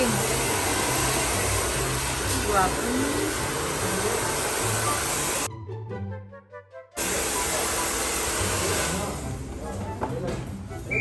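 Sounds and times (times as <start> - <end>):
hair dryer blowing: 0.0 - 5.5, 7.0 - 9.2
background music: 0.0 - 11.0.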